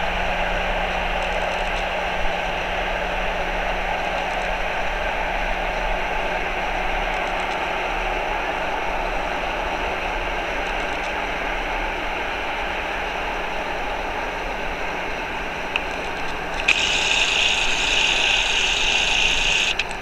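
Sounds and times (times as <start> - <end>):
high hiss: 16.6 - 19.9.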